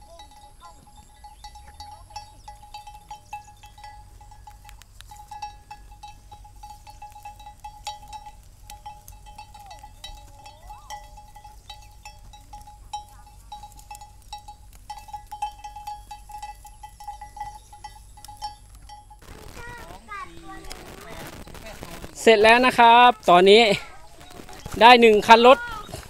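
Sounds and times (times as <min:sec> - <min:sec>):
light ticks and clicks: 0:01.5 - 0:19.2.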